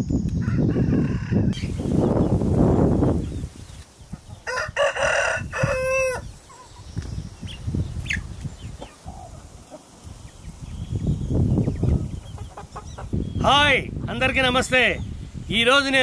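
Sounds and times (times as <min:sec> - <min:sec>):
rooster crowing: 0:00.4 - 0:01.6, 0:04.4 - 0:06.3.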